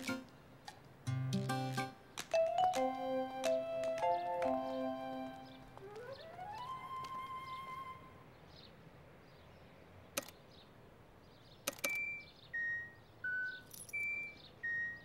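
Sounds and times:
held musical note: 1.4s - 8.2s
sharp clicks: 10.2s - 10.4s, 11.6s - 12.2s
crossing signal beeps: 11.9s - 15.0s.

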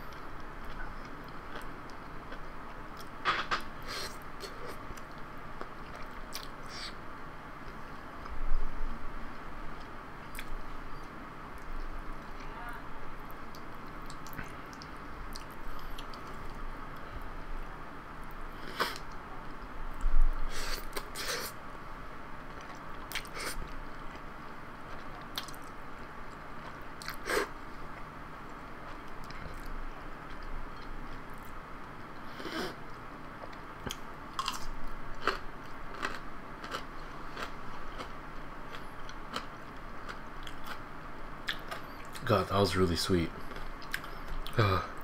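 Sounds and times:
chewing noodles: 32.9s - 38.1s.

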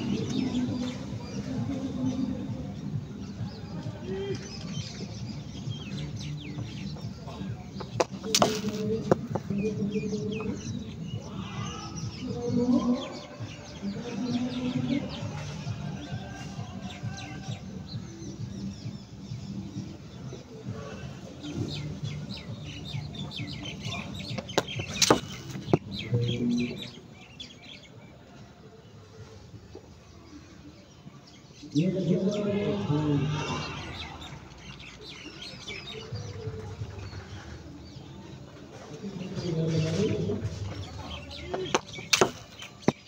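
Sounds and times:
small birds chirping: 0.0s - 43.0s
loud drawn-out bird call: 32.3s - 34.5s.

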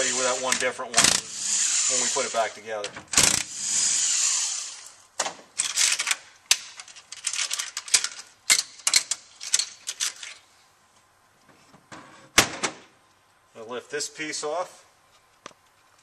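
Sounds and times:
power driver whirring: 0.0s - 5.0s
metal bolts clicking and clattering: 5.6s - 10.4s.

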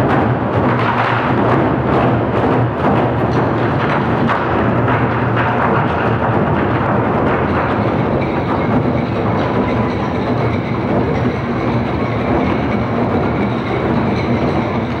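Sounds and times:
barrel drums beaten in fast rhythm: 0.0s - 15.0s.

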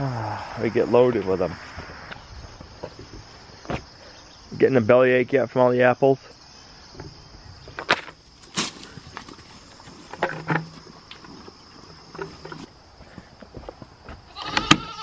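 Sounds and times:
crickets chirping: 0.0s - 15.0s
pigs rooting crunches and clicks: 7.8s - 12.7s
footsteps in mud: 7.8s - 14.4s
goat bleating: 14.3s - 15.0s.

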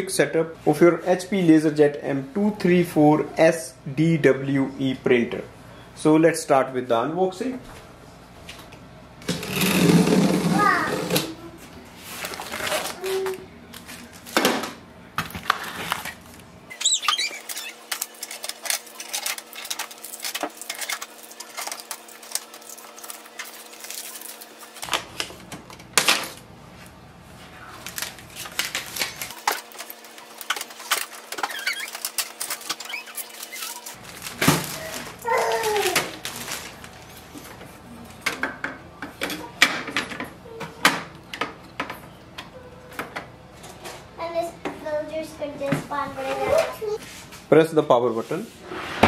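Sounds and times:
cardboard tape and plastic rustling: 12.0s - 14.5s, 15.2s - 26.9s, 27.6s - 37.6s
clicks and crinkles: 15.2s - 26.5s, 27.8s - 37.6s.

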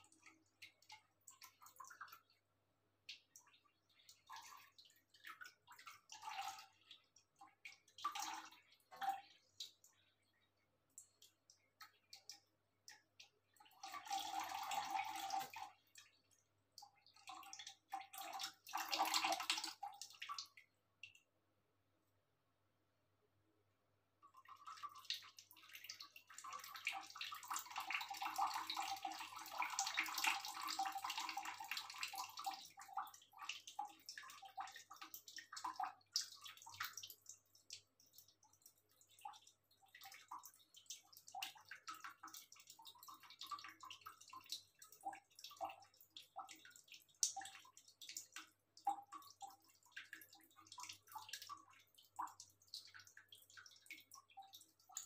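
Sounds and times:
cat lapping water: 0.0s - 21.3s, 24.2s - 55.0s
water splashing and dripping: 0.0s - 21.4s, 24.2s - 55.0s.

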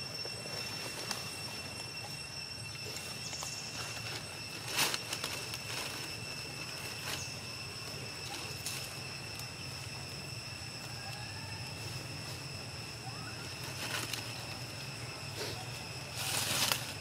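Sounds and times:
high-pitched whine: 0.0s - 17.0s
low hum: 0.0s - 17.0s.

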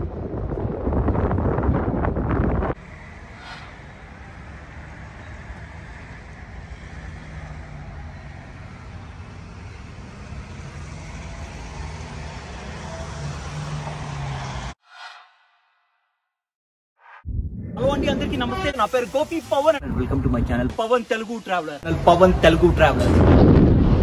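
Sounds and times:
wind buffeting microphone: 0.0s - 5.0s, 21.9s - 24.0s
road traffic rumble: 0.0s - 14.8s, 17.8s - 24.0s.

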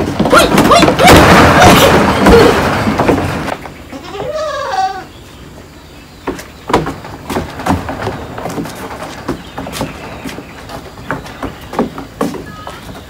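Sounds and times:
loud scuffle: 0.0s - 3.6s, 6.3s - 13.0s
sharp knocks: 0.0s - 3.6s, 6.2s - 12.8s
goat bleating: 3.9s - 5.1s.

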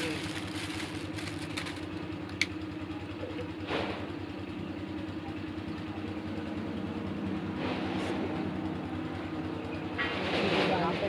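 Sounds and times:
plastic wrap rustling: 0.0s - 2.3s
motor humming: 0.0s - 10.1s.

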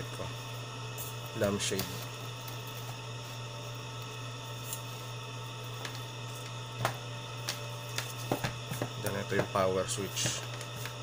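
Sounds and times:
low electrical mains hum: 0.0s - 11.0s.

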